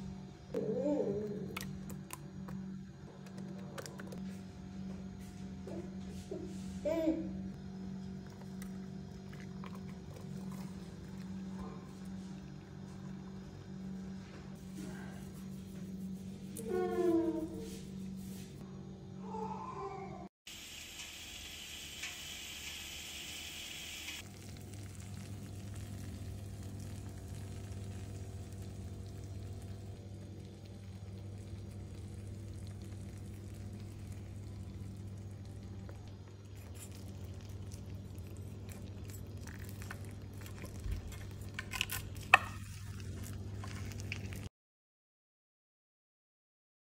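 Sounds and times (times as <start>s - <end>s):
steady low hum: 0.0s - 19.4s, 20.1s - 44.5s
food sizzling in a dish: 20.5s - 29.0s.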